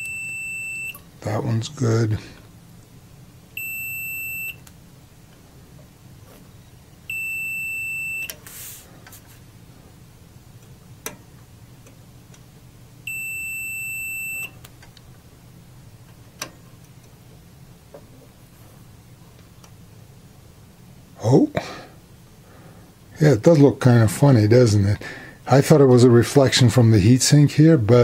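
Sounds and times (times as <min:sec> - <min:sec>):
multimeter continuity beeps: 0:00.0 - 0:01.1, 0:03.5 - 0:04.7, 0:06.6 - 0:08.4, 0:13.0 - 0:14.6.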